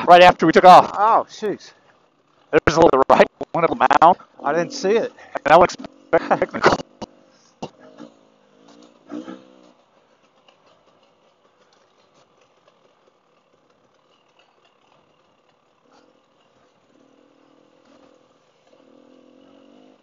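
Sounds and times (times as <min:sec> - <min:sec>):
dirt bike engine: 0:00.0 - 0:20.0.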